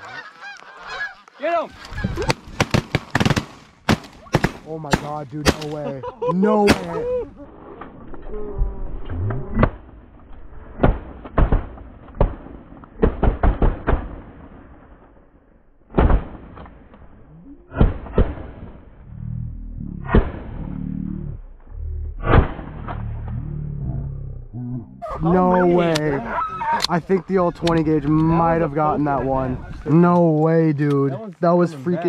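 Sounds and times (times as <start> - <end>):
shotgun blasts: 2.2 - 5.8, 6.6 - 7.0, 15.9 - 16.7.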